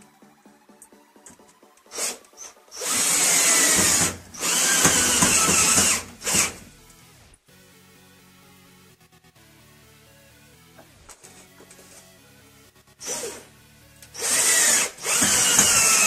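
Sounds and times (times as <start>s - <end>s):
electric drill running: 1.9s - 6.7s, 13.0s - 13.5s, 14.1s - 16.0s.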